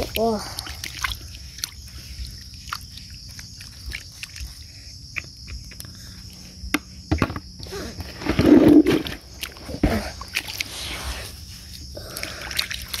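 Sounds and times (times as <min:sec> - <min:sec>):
small splashes: 0:00.0 - 0:05.3, 0:08.8 - 0:13.0.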